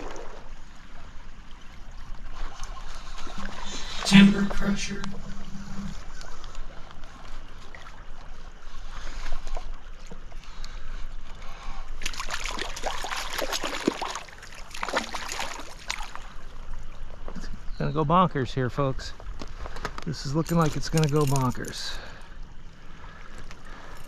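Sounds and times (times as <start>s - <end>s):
stream hiss: 3.0s - 6.2s
fish splashing in water: 12.0s - 16.5s.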